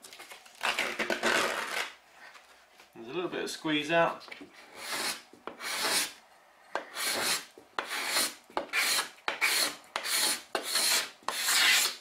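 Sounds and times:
card scraper scraping wood: 0:04.6 - 0:06.2, 0:06.8 - 0:12.0.

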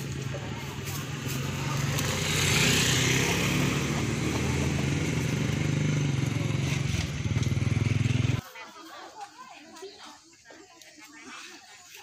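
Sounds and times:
motorcycle engine at low revs: 0:00.0 - 0:08.4.

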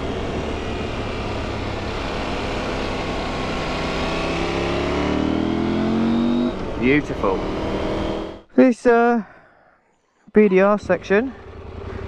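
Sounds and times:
motorcycle engine accelerating: 0:00.0 - 0:08.5, 0:10.8 - 0:12.0.

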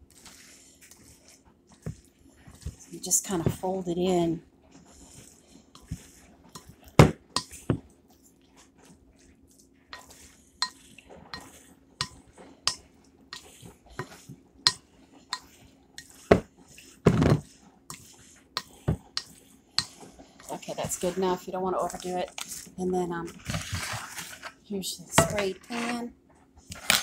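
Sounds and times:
soft squelches of wet mixture: 0:00.0 - 0:27.0
utensil scraping glass bowl: 0:09.9 - 0:22.7, 0:25.2 - 0:26.1.

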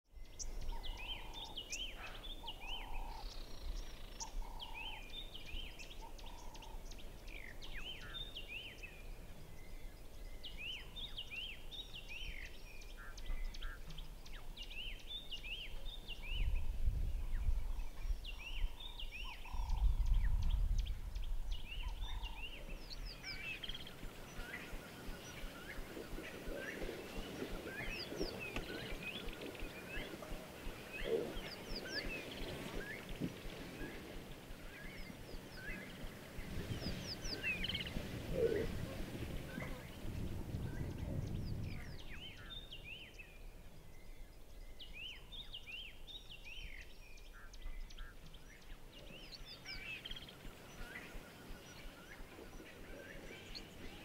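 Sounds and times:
birds chirping and whistling: 0:00.2 - 0:54.0
steady background hiss: 0:20.8 - 0:54.0.

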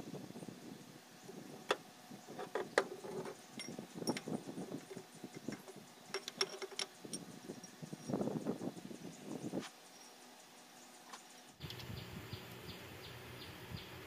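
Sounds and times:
metallic clinks of tools: 0:03.5 - 0:04.4.

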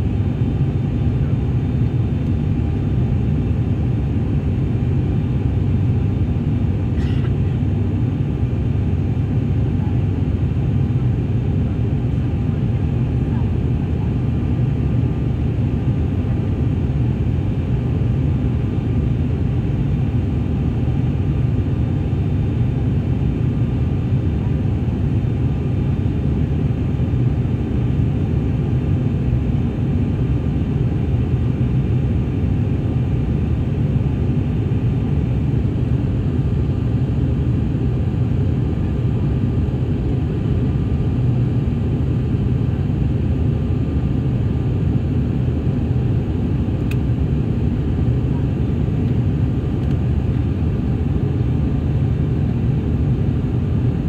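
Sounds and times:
turboprop engine drone in cabin: 0:00.0 - 0:54.0.

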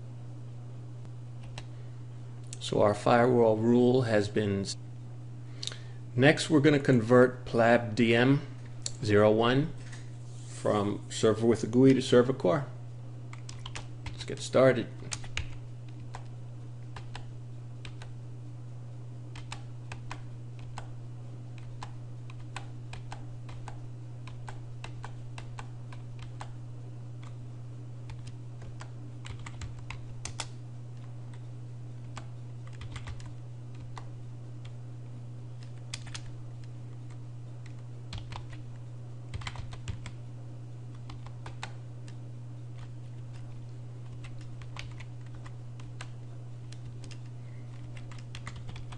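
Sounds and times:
steady low hum: 0:00.0 - 0:48.9
keyboard typing clicks: 0:01.4 - 0:01.7, 0:13.3 - 0:14.2, 0:16.9 - 0:18.1, 0:19.3 - 0:20.9, 0:21.6 - 0:26.6, 0:28.1 - 0:31.4, 0:32.1 - 0:34.8, 0:35.6 - 0:38.7, 0:39.3 - 0:40.2, 0:40.9 - 0:48.9.

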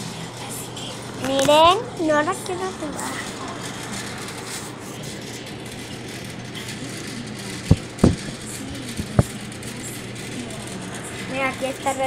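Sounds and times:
steady low hum: 0:00.0 - 0:12.0
sharp knocks of cardboard puzzle: 0:07.7 - 0:08.4.

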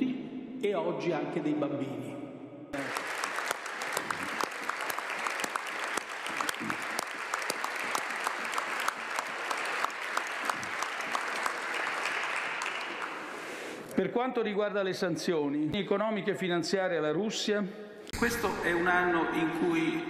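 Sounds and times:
crowd applauding: 0:02.8 - 0:13.8.

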